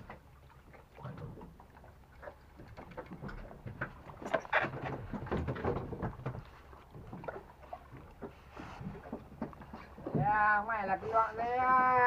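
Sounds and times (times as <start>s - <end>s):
water lapping against boat: 0.0s - 12.0s
knocks from hull and gear: 3.1s - 7.4s.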